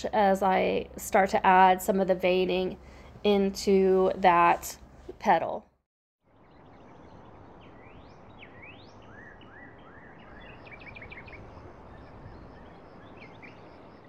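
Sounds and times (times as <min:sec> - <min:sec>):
birds chirping: 0:06.3 - 0:14.0.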